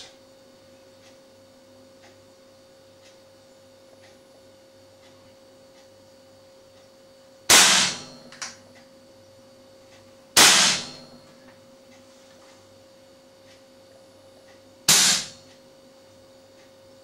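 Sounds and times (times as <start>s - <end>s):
faint steady hum: 0.0s - 17.0s
soft ticks: 1.0s - 1.2s, 2.0s - 2.2s, 3.0s - 3.2s, 3.9s - 4.4s, 5.0s - 6.0s, 13.4s - 13.7s
air rifle shot: 7.5s - 8.2s, 10.4s - 11.0s, 14.9s - 15.4s.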